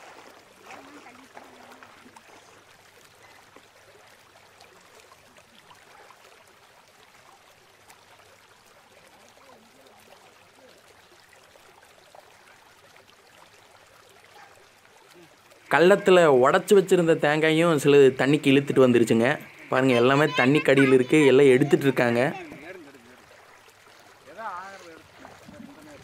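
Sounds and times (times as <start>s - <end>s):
small clicks and splashes: 0.0s - 15.7s, 22.3s - 26.0s
water trickling: 0.0s - 26.0s.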